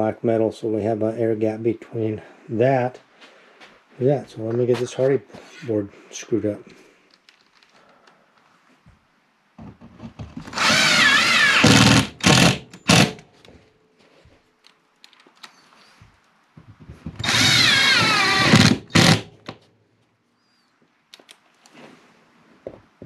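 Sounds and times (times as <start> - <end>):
cordless drill motor whine: 10.5 - 13.0, 17.2 - 19.2
drill trigger blips: 17.2 - 19.2.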